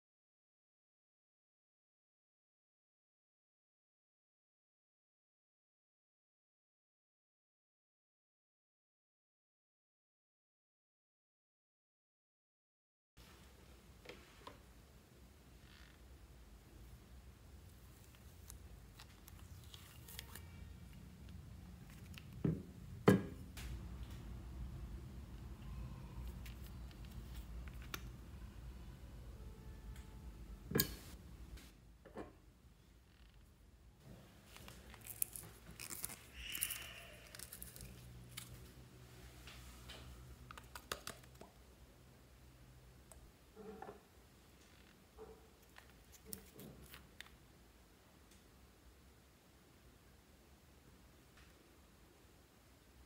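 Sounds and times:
low steady hum: 13.2 - 53.0.

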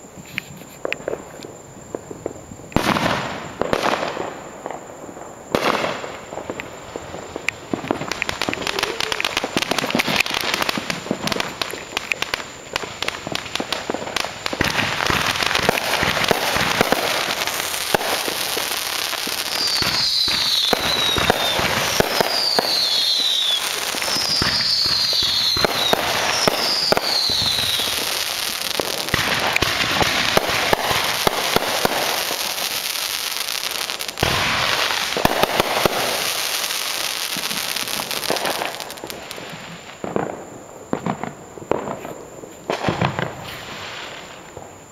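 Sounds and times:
firecrackers crackling and popping: 0.0 - 44.9
firework bangs: 2.0 - 44.9
firework whistles falling in pitch: 13.8 - 40.2.

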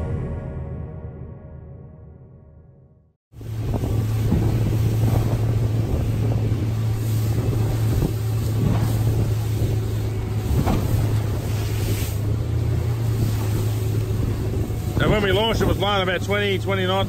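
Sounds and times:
boat engine drone: 3.3 - 17.0
hull slapping waves: 3.3 - 17.0
water rushing: 3.4 - 17.0.

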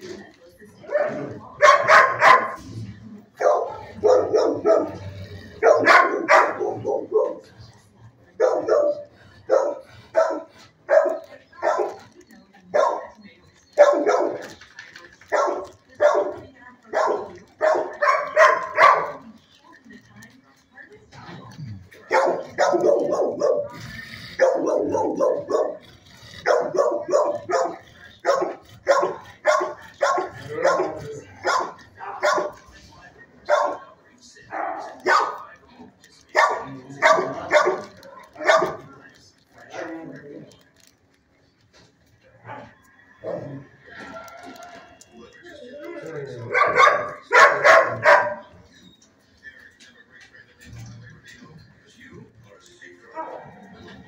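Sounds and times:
dogs barking: 0.8 - 7.6, 8.3 - 19.4, 21.9 - 32.7, 33.4 - 39.0, 46.0 - 49.0.

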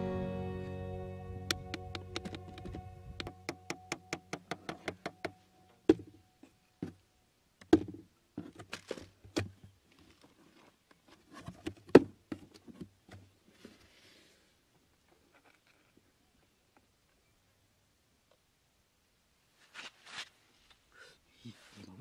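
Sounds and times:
hatchet tapping cardboard and wire: 1.5 - 6.1.

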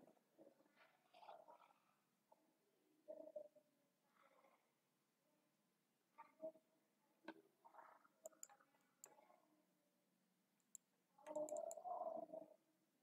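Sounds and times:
faint computer mouse clicks: 8.2 - 9.2, 10.6 - 11.9.

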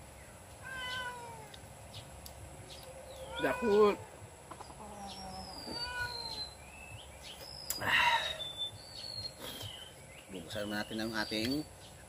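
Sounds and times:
cat meowing: 0.6 - 1.6, 3.2 - 4.0, 5.5 - 6.5.

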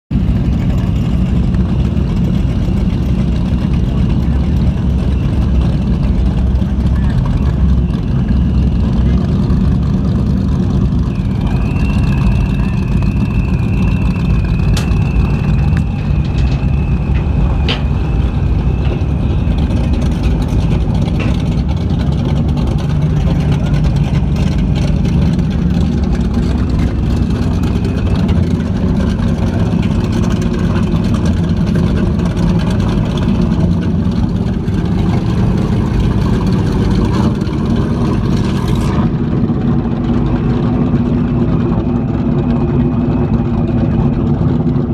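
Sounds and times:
boat engines idling: 0.1 - 44.9
faint high whine: 0.2 - 21.8.

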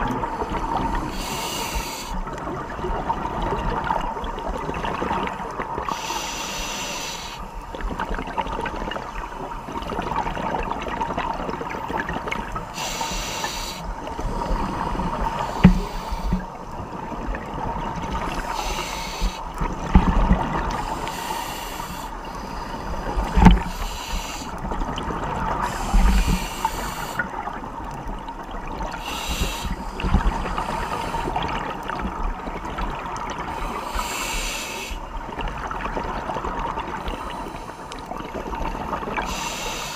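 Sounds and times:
steady underwater hum: 0.0 - 39.9
scuba regulator breathing: 0.2 - 2.3, 5.8 - 7.6, 12.6 - 16.6, 18.2 - 19.7, 20.7 - 24.6, 25.5 - 27.3, 28.9 - 31.6, 33.5 - 35.1, 36.9 - 38.1, 39.2 - 39.9.

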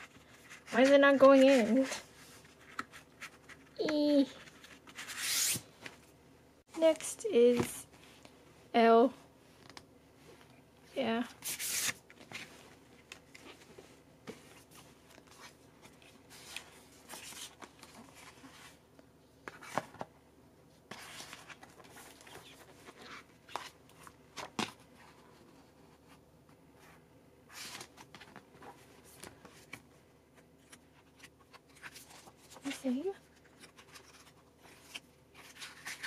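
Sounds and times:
cardboard and paper rustling: 0.0 - 6.0, 30.5 - 36.0.

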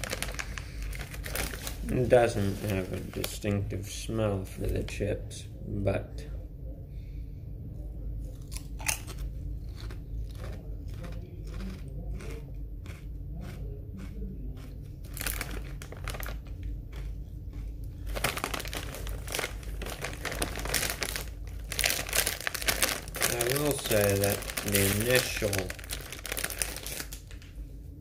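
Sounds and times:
plastic chip bag crinkling: 0.0 - 3.5, 8.4 - 12.4, 14.6 - 27.6
chewing crunchy potato chips: 8.2 - 27.4.

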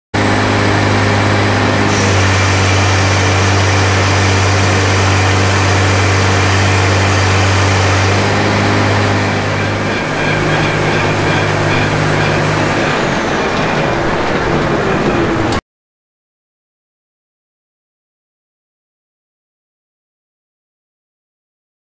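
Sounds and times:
tractor engine running: 0.2 - 15.6.

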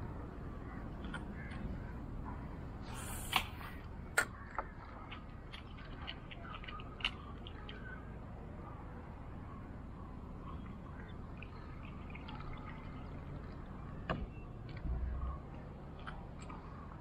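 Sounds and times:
water splashing and dripping: 3.3 - 8.2, 10.4 - 17.0.

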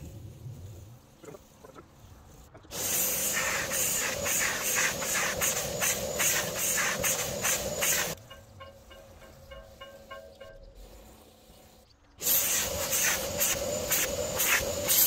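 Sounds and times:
spray extractor hissing: 2.6 - 8.2, 10.8 - 15.0.

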